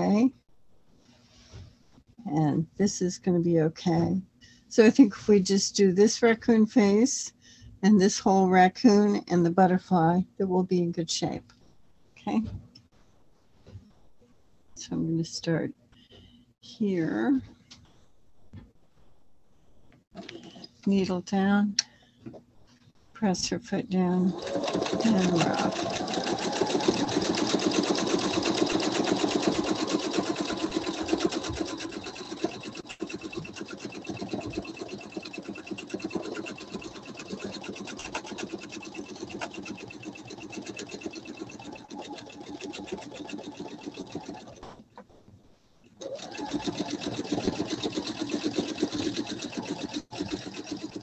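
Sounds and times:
sewing machine needle chatter: 24.3s - 44.7s, 46.0s - 51.0s.

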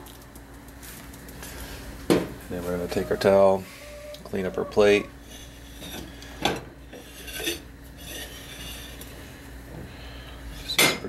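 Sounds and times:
towel rubbing ceramic bowl: 2.6s - 6.0s.

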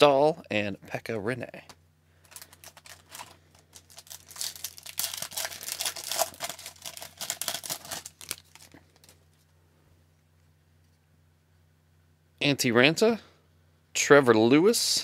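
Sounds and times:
foil wrapper crinkling and tearing: 2.2s - 9.3s.

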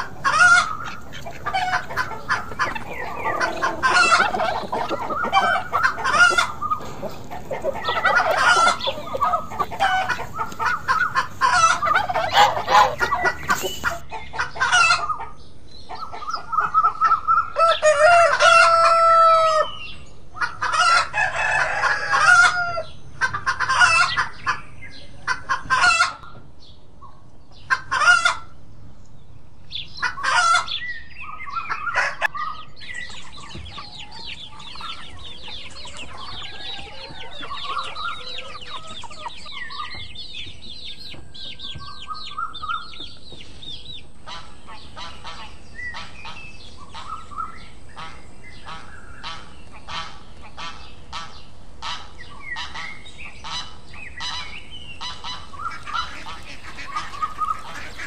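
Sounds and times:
rooster crowing: 0.0s - 14.0s, 17.6s - 19.7s, 21.1s - 22.9s, 36.1s - 39.0s
quail chicks peeping: 0.0s - 22.5s, 29.8s - 58.0s.

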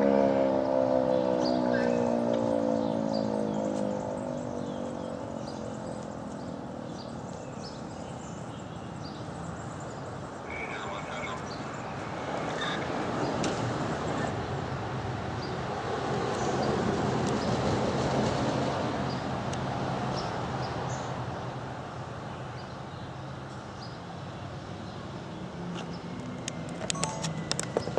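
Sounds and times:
vehicle passing: 0.0s - 9.8s, 10.4s - 22.0s.

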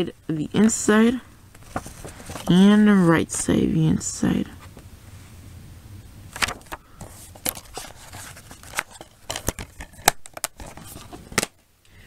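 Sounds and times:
plastic cases clicking and knocking: 8.6s - 10.8s.

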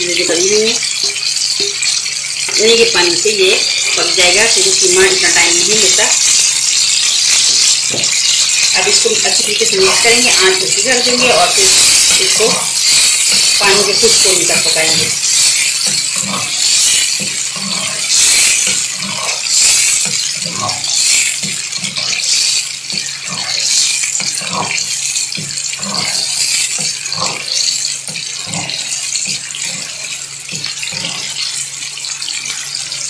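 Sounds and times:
meat sizzling in a pan: 0.0s - 33.0s
wooden spoon stirring: 0.1s - 33.0s.

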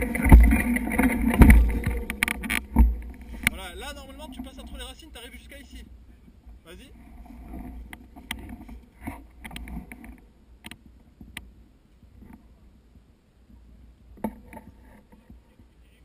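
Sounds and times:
sharp clicks and knocks: 0.0s - 3.6s
wind rumble on microphone: 0.0s - 16.0s.

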